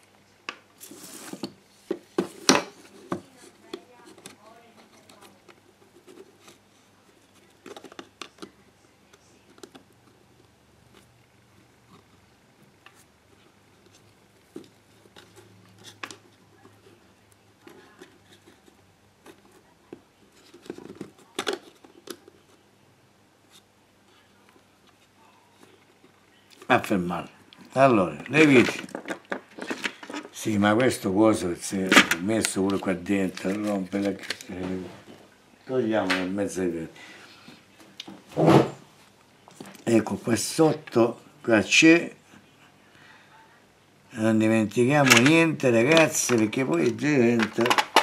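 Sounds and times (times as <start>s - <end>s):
plastic parts clicking and tapping: 7.4s - 8.6s, 17.6s - 22.5s, 28.4s - 30.9s, 45.0s - 48.0s.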